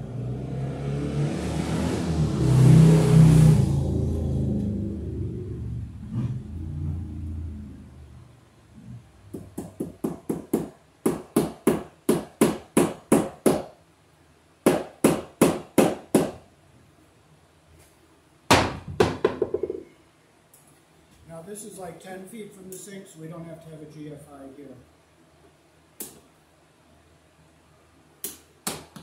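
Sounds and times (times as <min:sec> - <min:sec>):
hammer striking wood: 0:09.3 - 0:13.8, 0:14.6 - 0:16.4, 0:18.5 - 0:19.8.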